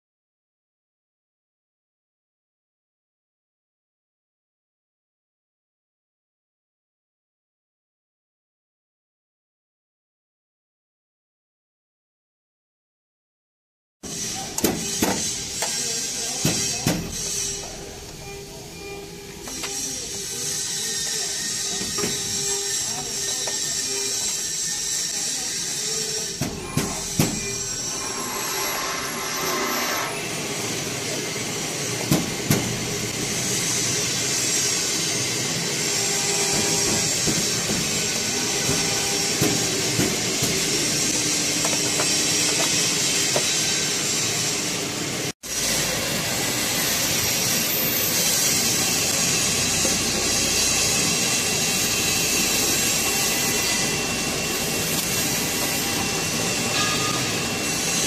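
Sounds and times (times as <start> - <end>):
machinery running with hiss: 14.1 - 58.0.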